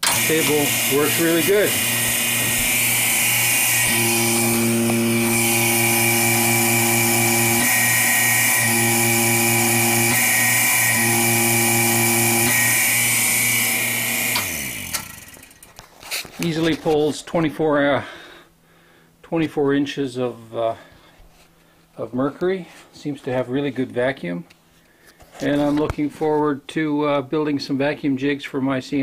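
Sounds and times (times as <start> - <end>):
vacuum pump humming and hissing: 0.0 - 16.3.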